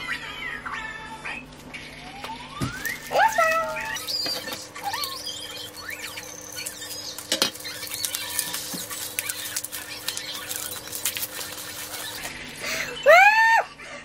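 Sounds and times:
packaging crinkling: 2.8 - 12.6.

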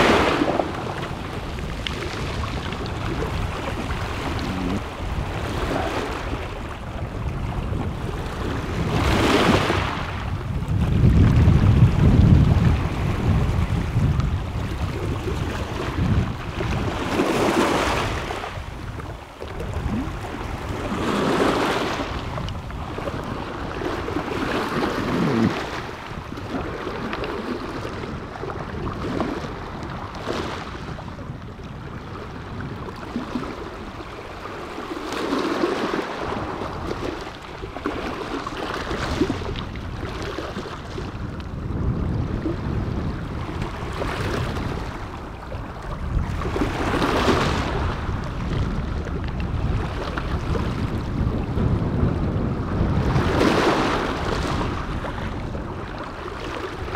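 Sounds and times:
waves breaking on pebbles: 0.0 - 6.8.

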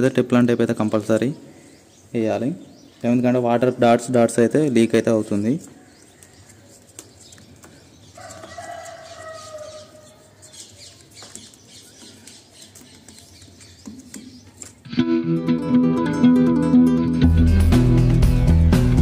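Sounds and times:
faint clicks and rustles: 5.6 - 9.2
rooster crowing: 8.2 - 10.2.

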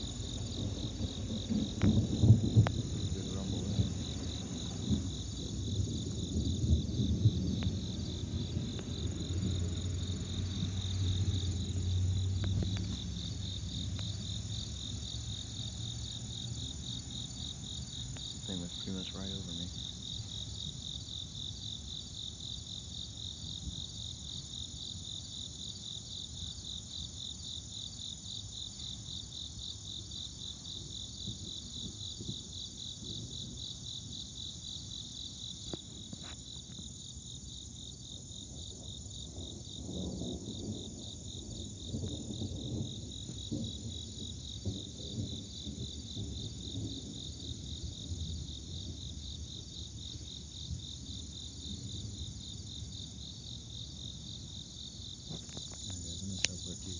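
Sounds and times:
low rumbling noise: 0.0 - 16.4
crickets chirring: 0.0 - 56.9.

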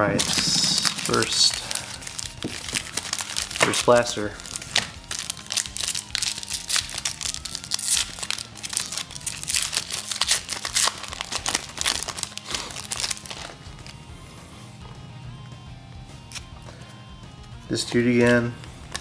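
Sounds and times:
foil wrapper crinkling and tearing: 0.2 - 14.0.

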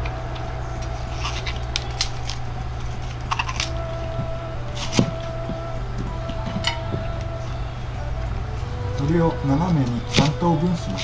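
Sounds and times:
vegetable stalks snapping: 0.0 - 3.9, 4.8 - 5.4, 9.8 - 11.0
steady low hum: 0.0 - 11.0.

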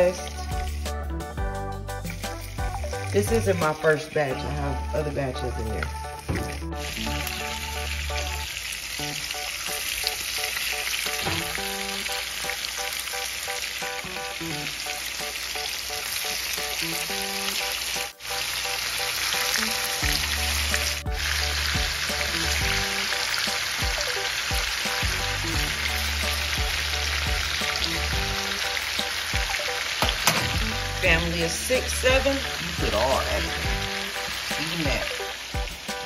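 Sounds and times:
fish sizzling in hot oil: 0.0 - 1.0, 1.8 - 5.0, 6.1 - 36.0
low tune playing: 11.1 - 12.5, 29.4 - 35.7.

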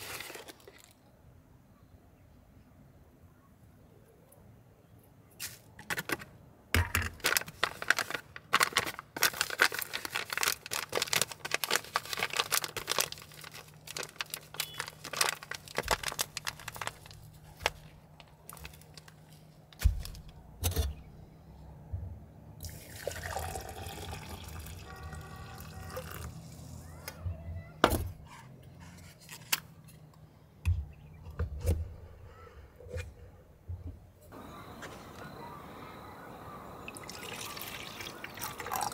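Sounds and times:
paper bag crackling: 0.0 - 1.0, 6.9 - 20.3
water pouring into glass press: 22.6 - 26.3, 36.9 - 38.9.

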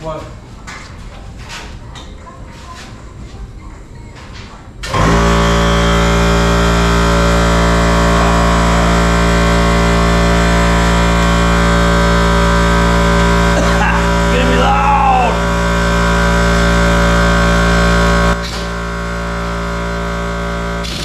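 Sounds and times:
machine motor humming: 4.8 - 21.0.

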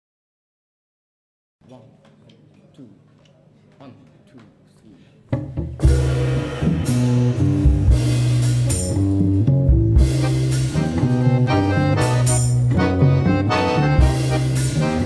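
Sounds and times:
jazz trio playing: 5.3 - 15.0.

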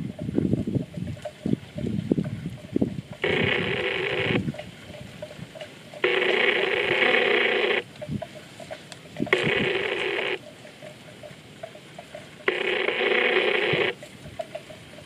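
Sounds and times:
electronic phone ringing: 3.2 - 4.6, 6.0 - 7.9, 9.2 - 10.5, 12.4 - 14.0
calves tearing grass: 3.2 - 10.8.

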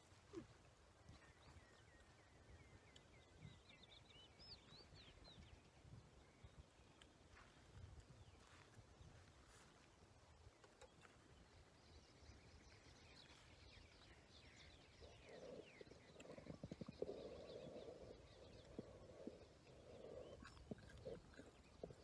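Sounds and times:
faint bird chirping: 0.0 - 22.0
chewing: 13.1 - 22.0.

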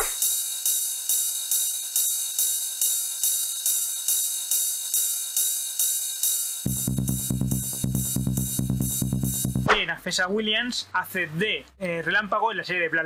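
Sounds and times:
bright hissy beat: 0.0 - 10.4
deep bass and drums: 6.7 - 9.7.

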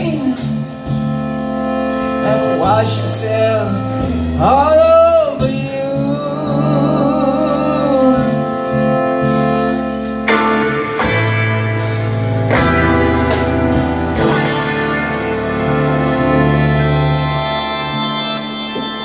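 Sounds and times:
live band playing sustained chords: 0.0 - 19.0
wavering high note: 9.1 - 19.0.

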